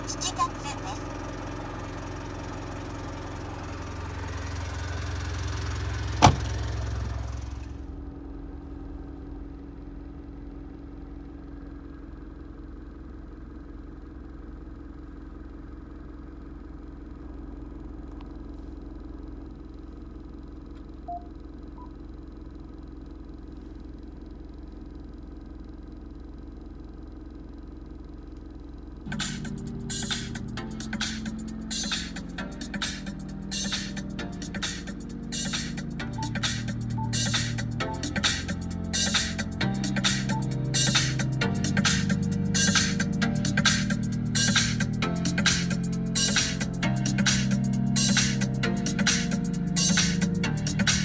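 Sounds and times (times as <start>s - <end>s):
low cabin hum: 3.3s - 14.0s, 28.4s - 51.0s.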